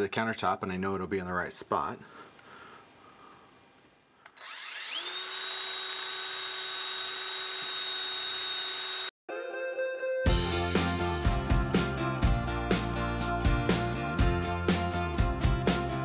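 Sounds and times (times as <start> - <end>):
cordless drill whining: 4.3 - 9.2
background music: 9.3 - 16.0.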